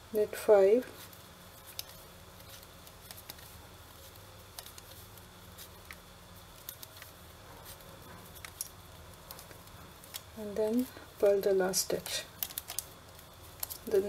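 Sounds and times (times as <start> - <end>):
faint low hum: 0.0 - 14.0
knitting needles clicking: 11.9 - 14.0.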